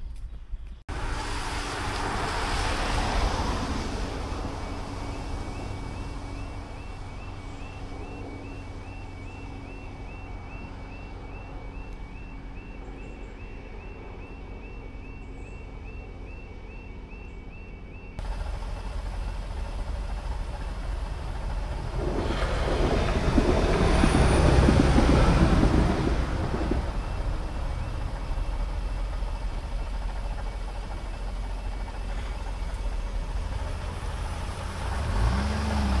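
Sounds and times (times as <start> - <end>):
train passing: 0.9 - 36.0
car engine revving: 32.1 - 36.0.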